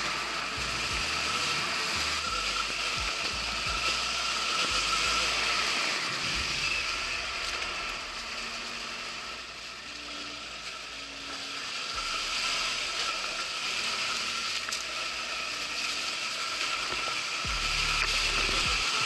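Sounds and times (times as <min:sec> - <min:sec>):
wind and tyre rush: 0:00.0 - 0:09.6
electric motorcycle whine: 0:00.0 - 0:19.0.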